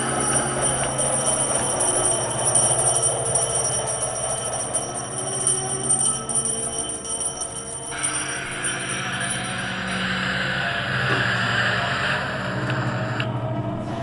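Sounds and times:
jingling bell-like layer: 0.0s - 11.0s
steady held tones: 0.0s - 13.2s.

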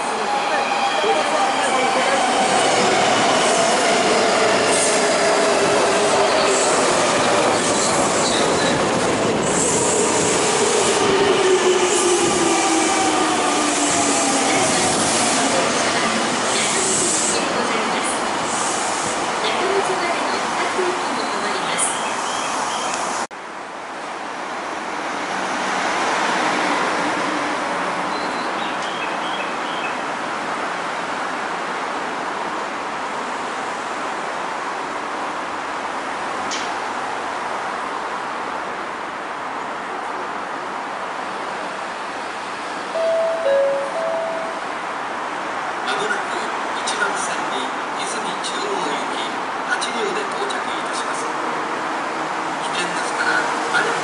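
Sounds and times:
rushing outdoor background noise: 13.6s - 54.0s.

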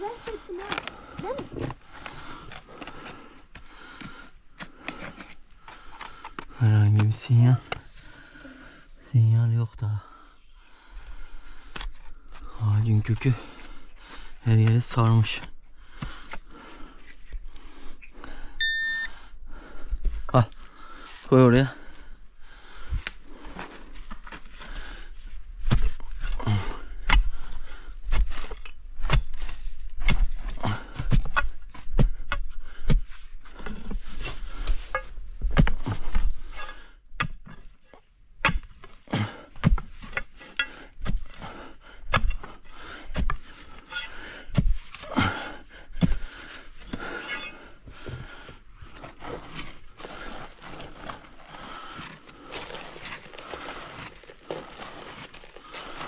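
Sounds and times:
tools scraping soil: 0.1s - 7.9s, 11.6s - 18.3s, 25.6s - 45.4s, 46.0s - 48.2s, 48.9s - 56.0s.

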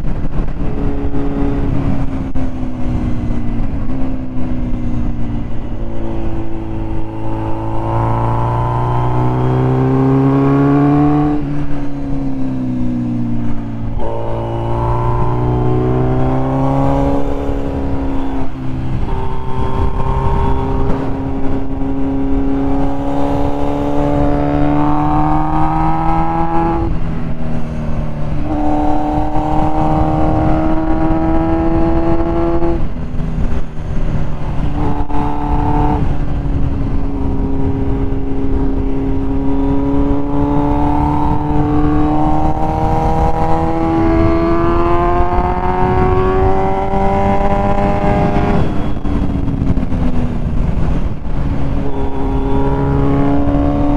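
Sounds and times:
motorcycle engine revving: 0.0s - 53.9s
wind and road noise: 0.0s - 53.9s.

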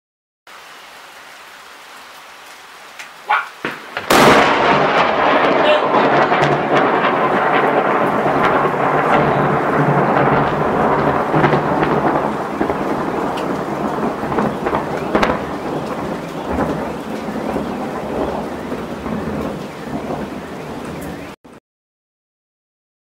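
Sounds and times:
steady rain: 0.5s - 21.6s
rolling thunder: 3.6s - 21.4s.

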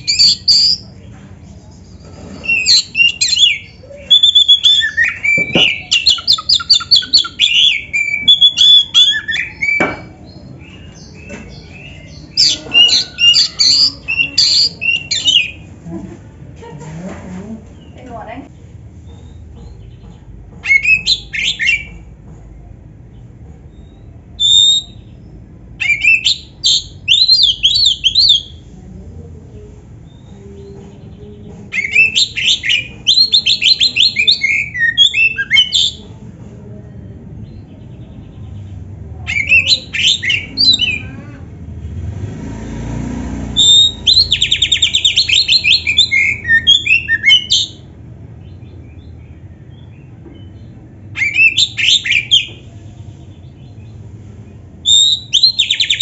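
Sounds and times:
bird singing whistles and trills: 2.4s - 15.6s, 23.8s - 25.2s, 25.8s - 28.6s, 39.3s - 41.0s, 43.6s - 47.8s, 48.4s - 52.6s, 54.8s - 56.0s.

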